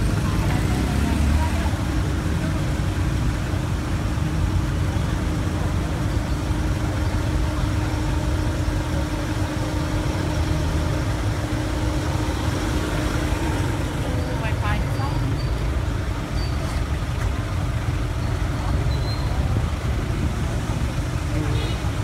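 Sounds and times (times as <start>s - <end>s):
van engine idling: 0.0s - 22.0s.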